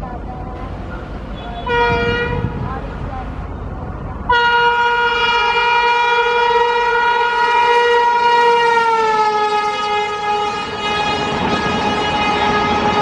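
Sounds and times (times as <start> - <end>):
electric locomotive horn blast: 1.3 - 2.6, 4.3 - 13.0.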